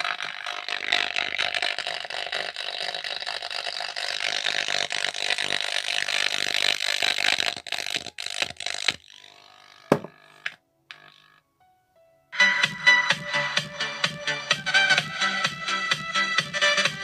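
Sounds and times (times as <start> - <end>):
distorted music from speaker: 12.4 - 17.0.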